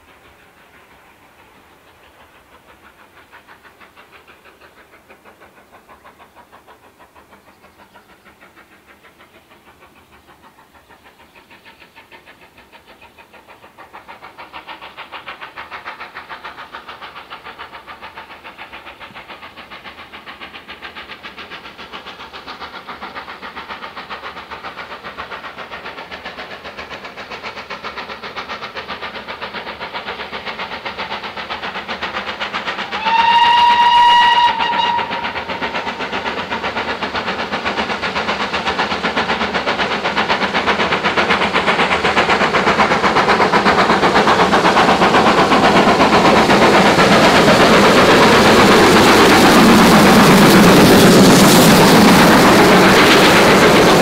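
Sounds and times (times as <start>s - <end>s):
steam locomotive exhaust beats: 0.0s - 54.0s
train wheels clattering: 0.0s - 54.0s
steam whistle blast: 32.9s - 35.6s.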